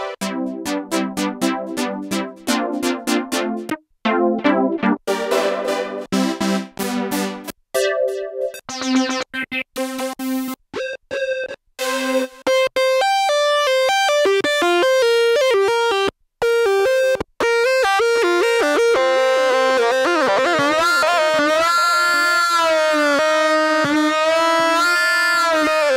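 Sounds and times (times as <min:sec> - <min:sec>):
synthesizer melody: 0:00.0 - 0:14.1.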